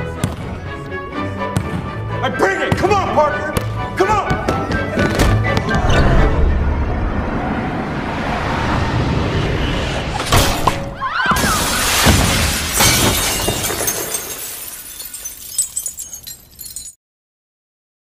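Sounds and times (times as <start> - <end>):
glass backboard shattering: 11.4 - 17.0
glass fragments tinkling: 11.8 - 17.0.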